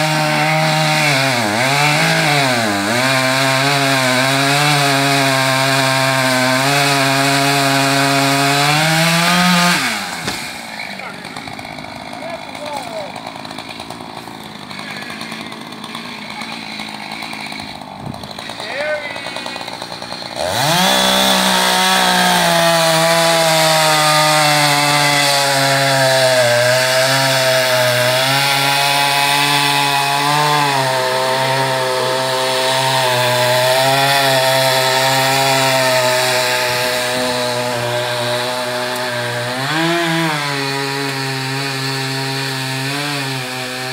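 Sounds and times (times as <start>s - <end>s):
small petrol engine revving: 19.2s - 43.9s.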